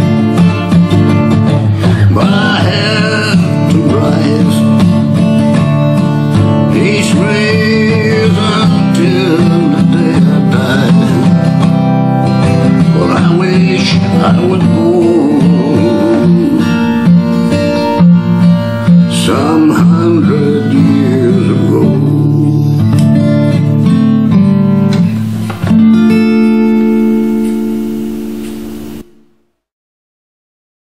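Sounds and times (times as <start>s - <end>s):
acoustic guitar strumming: 0.0s - 29.6s
man singing: 1.7s - 5.3s, 6.4s - 11.8s, 12.4s - 17.2s, 18.9s - 23.3s.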